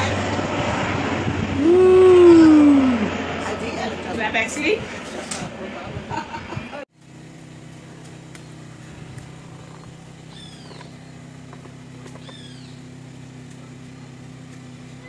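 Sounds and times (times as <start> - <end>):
generator engine hum: 0.0 - 15.0
bird calls arcing downward: 9.6 - 11.2, 12.1 - 12.9.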